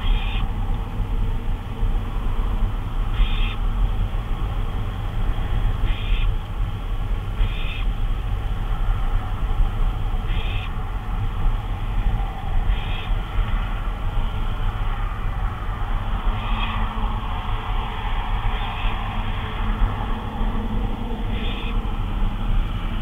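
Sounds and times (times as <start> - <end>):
barn owl raspy calls: 0.0 - 0.6, 3.0 - 3.7, 5.3 - 6.4, 7.3 - 8.0, 10.2 - 10.9, 12.2 - 13.6, 16.2 - 17.5, 21.2 - 21.9
steady low hum: 0.0 - 23.0.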